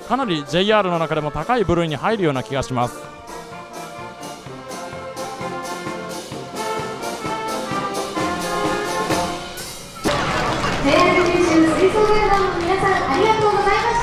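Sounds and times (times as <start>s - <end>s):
trumpets and trombones: 0.0s - 11.2s
percussion beat: 0.0s - 14.0s.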